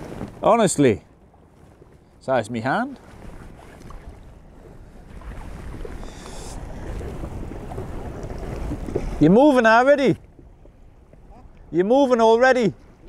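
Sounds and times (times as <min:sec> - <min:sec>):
water lapping around boat: 0:00.0 - 0:13.0
wind buffeting microphone: 0:00.0 - 0:13.0
brief hiss: 0:06.0 - 0:06.6.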